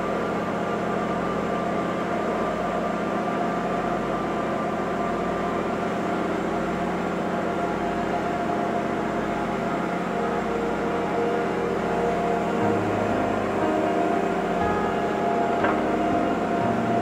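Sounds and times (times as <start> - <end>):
ferry engine droning: 0.0 - 17.0.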